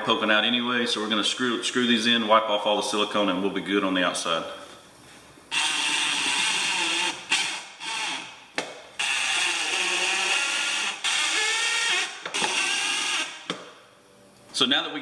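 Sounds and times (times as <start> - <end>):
power drill driving screws: 5.5 - 8.3, 9.0 - 13.5.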